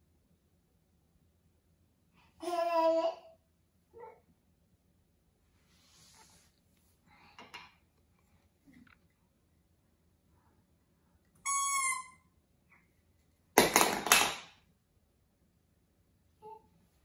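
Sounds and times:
toy trumpet toot: 0:11.4 - 0:12.3
plastic toy clattering on wooden floor: 0:13.6 - 0:14.6.

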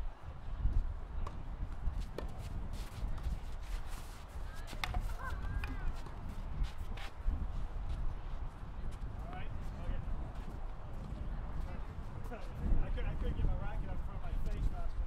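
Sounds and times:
tennis ball struck by rackets: 0:04.7 - 0:06.2.

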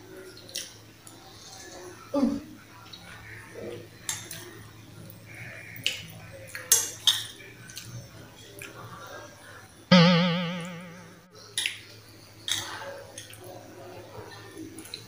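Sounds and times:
plucked string note wobbling: 0:09.9 - 0:11.3.

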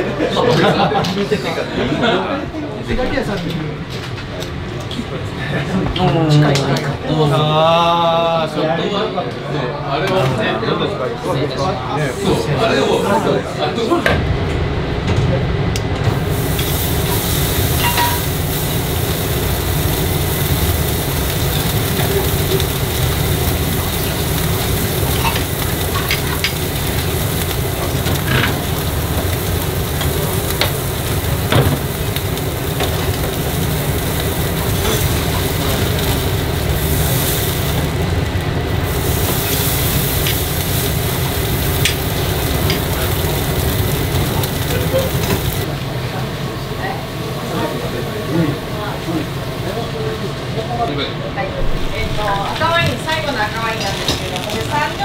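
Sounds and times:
charcoal crackles and pops: 0:16.1 - 0:45.7, 0:51.7 - 0:55.0
beef sizzling on a grill: 0:16.1 - 0:50.8, 0:51.7 - 0:55.0.

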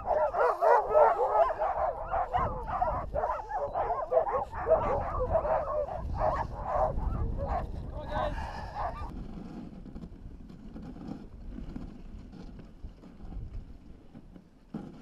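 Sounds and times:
sled dogs whining and yipping: 0:00.0 - 0:09.1.

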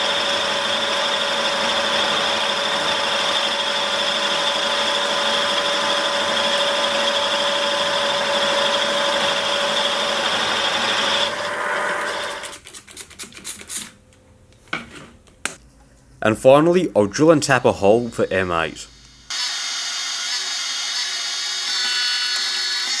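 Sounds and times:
cutter scraping metal: 0:00.0 - 0:12.5, 0:19.3 - 0:23.0
milling machine spindle humming: 0:00.0 - 0:12.5.

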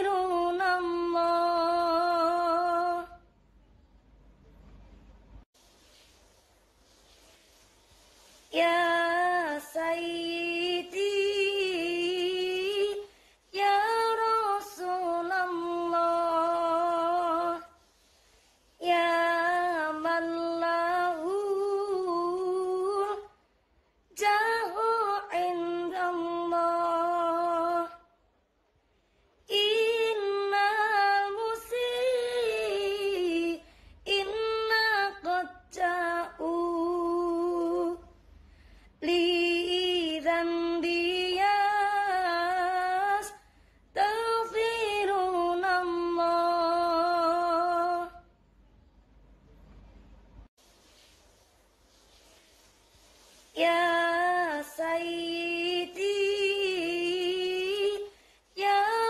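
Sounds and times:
woman singing solo: 0:29.5 - 0:38.0.

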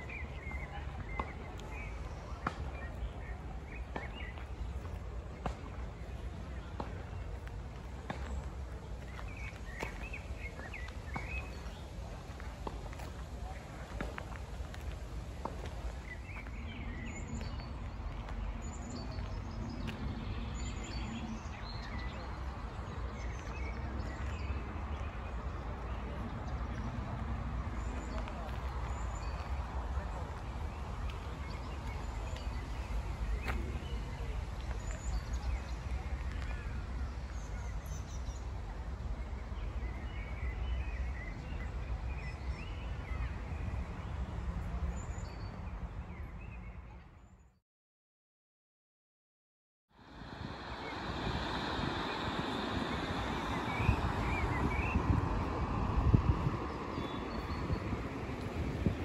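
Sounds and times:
low outdoor rumble: 0:50.0 - 0:59.0
small birds chirping: 0:50.0 - 0:59.0.

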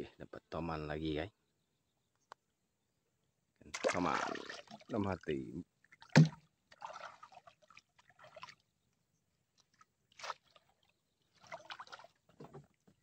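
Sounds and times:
shallow water splashing: 0:03.7 - 0:08.7, 0:09.5 - 0:12.8.

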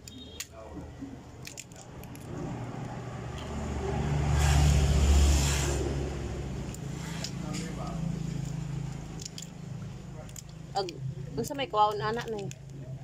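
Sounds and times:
crab shell cracking: 0:01.2 - 0:03.4, 0:08.4 - 0:11.1
vehicle passing close by: 0:02.1 - 0:09.9.

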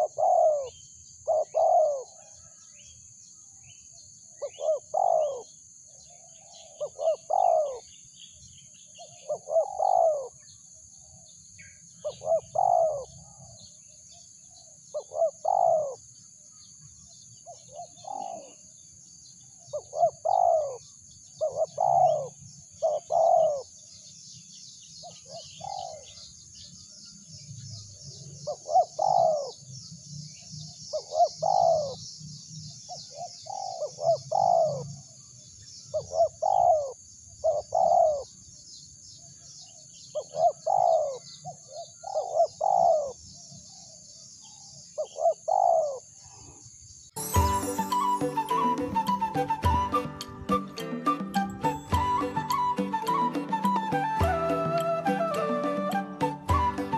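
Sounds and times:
dove cooing: 0:00.0 - 0:02.2, 0:04.4 - 0:05.4, 0:06.8 - 0:07.8, 0:09.3 - 0:10.4, 0:12.0 - 0:13.1, 0:15.0 - 0:16.0, 0:17.7 - 0:18.6, 0:19.8 - 0:20.8, 0:21.4 - 0:23.6, 0:28.5 - 0:29.6, 0:31.0 - 0:32.0, 0:33.2 - 0:34.8, 0:36.0 - 0:38.3, 0:40.2 - 0:41.2, 0:42.0 - 0:43.2, 0:45.0 - 0:46.0
high chattering of insects or birds: 0:00.0 - 0:50.0.

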